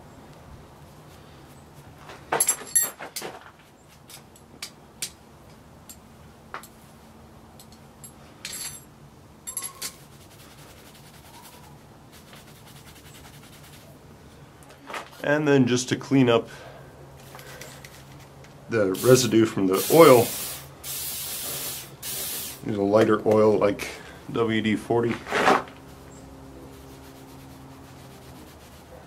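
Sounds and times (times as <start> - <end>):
metal tools clinking on anvil: 7.6 - 10.0.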